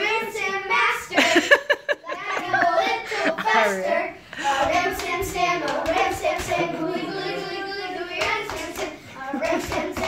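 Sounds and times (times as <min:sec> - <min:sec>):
children singing: 0:02.2 - 0:10.0
hand claps: 0:04.6 - 0:06.7, 0:08.2 - 0:10.0.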